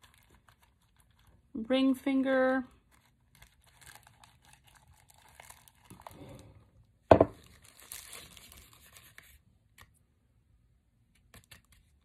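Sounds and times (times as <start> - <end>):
plastic bag crinkling: 0.0 - 6.6, 7.2 - 9.4.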